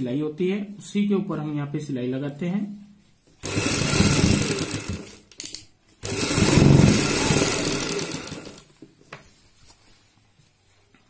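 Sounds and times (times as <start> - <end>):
sewing machine running: 3.4 - 5.3, 6.0 - 8.7.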